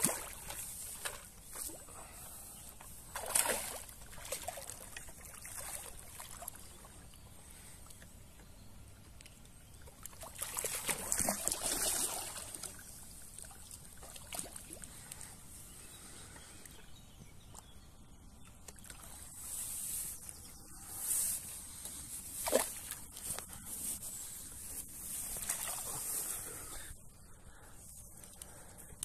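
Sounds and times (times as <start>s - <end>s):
fish splashing in water: 3.1s - 6.6s, 10.1s - 12.8s.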